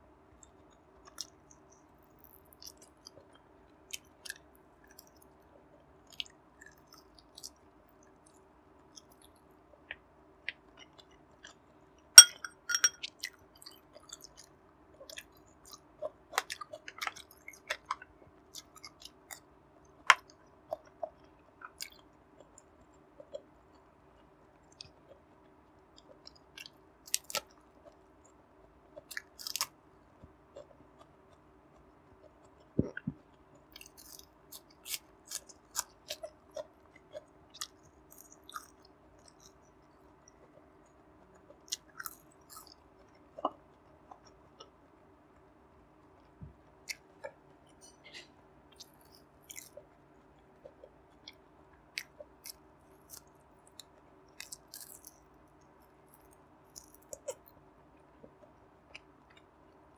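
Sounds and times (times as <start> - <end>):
mouth clicks and smacks: 0.4 - 5.2, 29.0 - 40.7, 41.3 - 44.8
chewing and biting: 0.4 - 5.3, 13.0 - 19.5, 29.0 - 44.7, 48.7 - 49.9, 50.5 - 55.2, 56.0 - 57.5.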